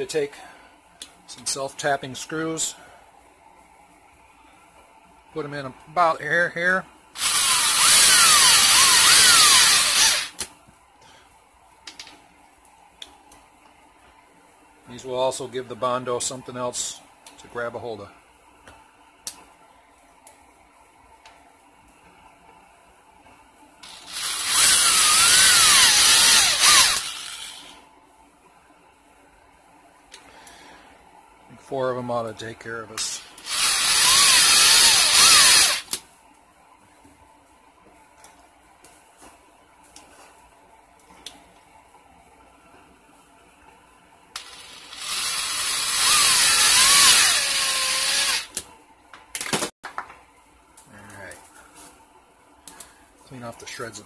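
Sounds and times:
drill squealing into plastic: 0:07.2 - 0:10.4, 0:23.8 - 0:27.7, 0:33.4 - 0:35.9, 0:44.4 - 0:48.6.

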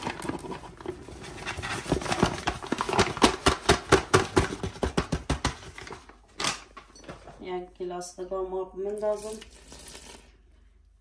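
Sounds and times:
paper bag rustling: 0:00.0 - 0:03.2.

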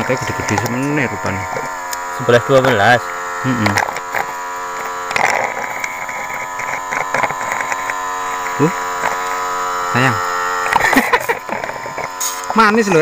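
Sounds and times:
suction pump humming: 0:00.0 - 0:13.0
scattered clicks: 0:00.2 - 0:09.4.

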